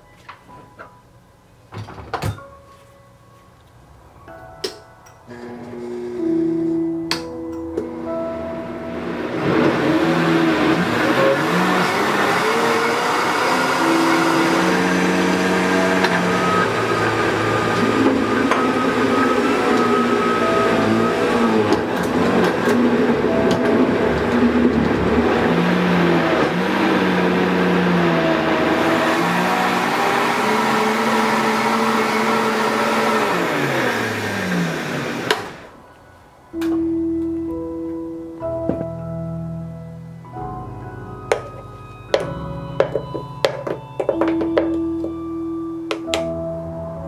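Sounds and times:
blender motor whine: 5.3 - 6.7, 8.8 - 35.7.

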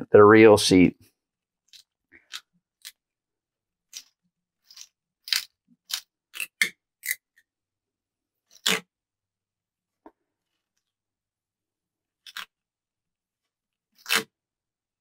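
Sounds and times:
masking tape ripping off roll: 14.0 - 14.3.

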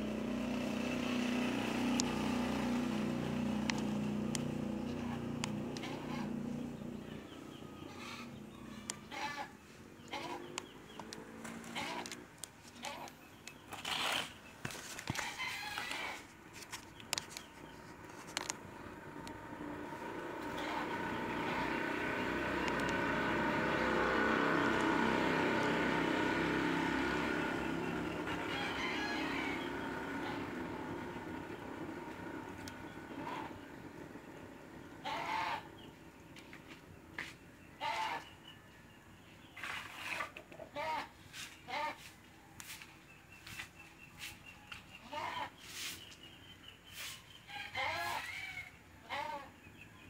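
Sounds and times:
motor drone: 19.2 - 34.2.

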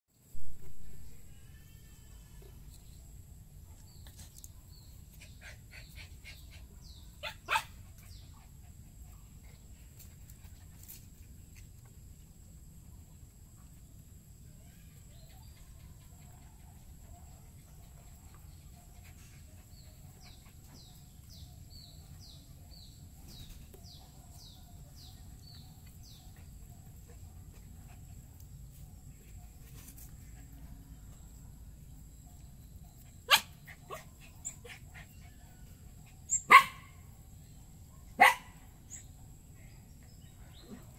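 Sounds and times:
faint low hum: 0.1 - 40.9
animal bark: 7.2 - 8.2, 33.3 - 35.2, 36.3 - 37.0, 38.0 - 39.0.

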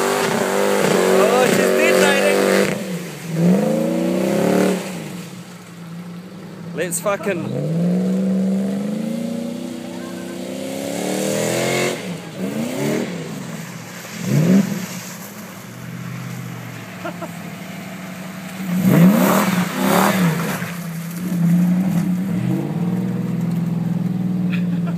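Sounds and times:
engine revving hard: 0.0 - 5.2, 7.2 - 13.4, 18.7 - 20.7
wheels spinning in mud: 12.2 - 24.9.

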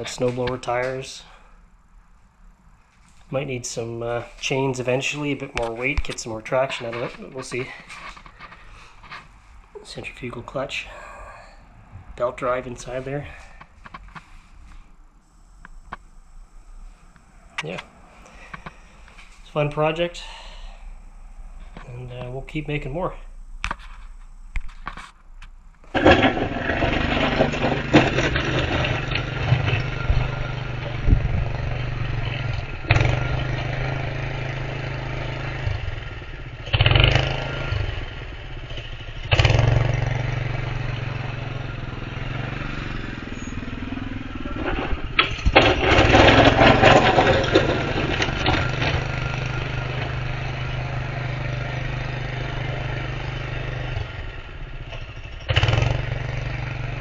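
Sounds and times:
plow pushing wet snow: 25.9 - 35.8, 39.3 - 54.1
small engine running: 25.9 - 57.0.

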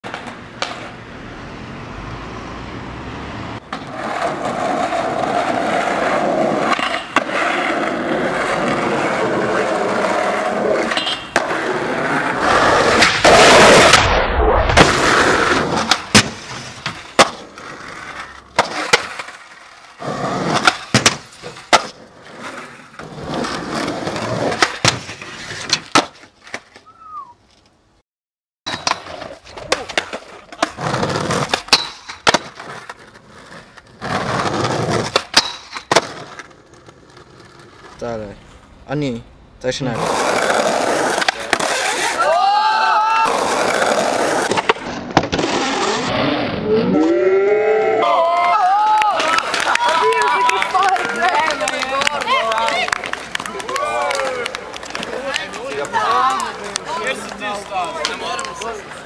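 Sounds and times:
skateboard wheels rolling on concrete: 0.0 - 28.0, 28.7 - 59.0
skateboard snaps and landing clacks: 0.1 - 1.0, 15.6 - 17.7, 18.5 - 19.4, 20.5 - 22.0, 24.4 - 26.9, 28.7 - 37.0, 41.1 - 42.0, 43.6 - 45.6.

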